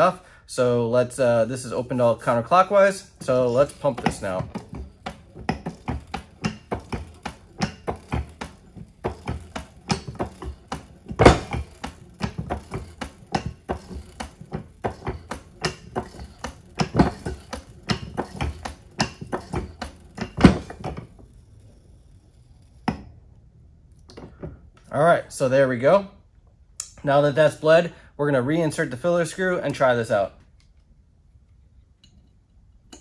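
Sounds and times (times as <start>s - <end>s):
floor jack pump clicking: 1.7s - 21.4s.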